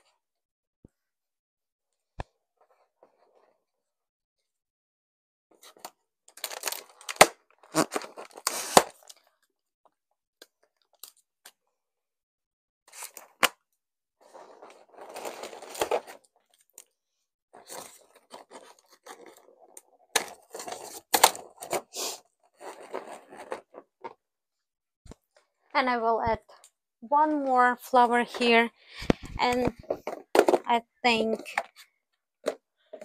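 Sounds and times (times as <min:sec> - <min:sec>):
balloons crinkling and tearing: 0:06.3 - 0:09.4, 0:14.7 - 0:16.8, 0:17.6 - 0:23.9.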